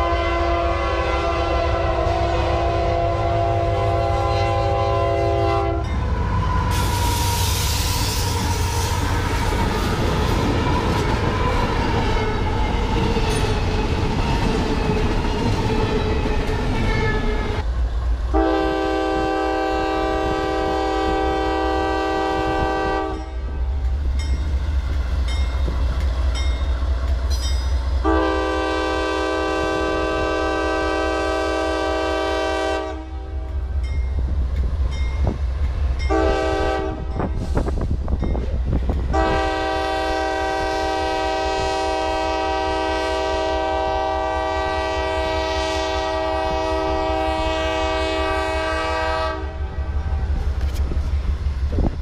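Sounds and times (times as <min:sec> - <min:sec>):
locomotive air horn blasts: 0:00.0 - 0:09.0, 0:18.3 - 0:23.5, 0:28.0 - 0:33.5, 0:36.1 - 0:37.7, 0:39.1 - 0:49.9
low rumble of engine and freight cars: 0:00.0 - 0:52.0.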